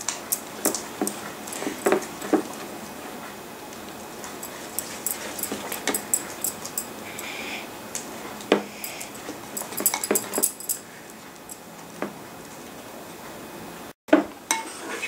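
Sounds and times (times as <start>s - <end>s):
spoon stirring thick slime: 4.4s - 7.2s.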